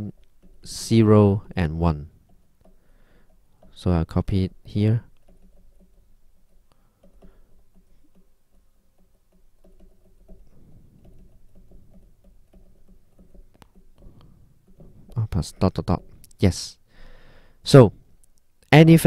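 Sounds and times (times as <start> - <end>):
stylus tapping on tablet screen: 5.1 - 16.4.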